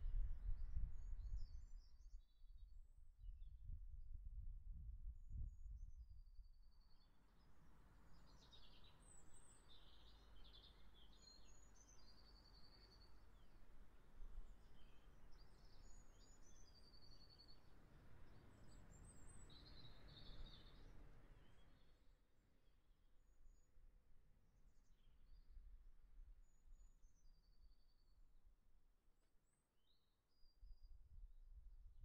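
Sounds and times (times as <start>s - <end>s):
small birds chirping: 8.1s - 13.6s.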